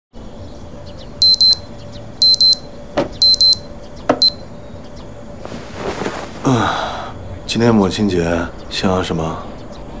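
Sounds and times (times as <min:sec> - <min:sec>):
alarm clock double beeps: 0:01.2 - 0:01.6, 0:02.2 - 0:04.4.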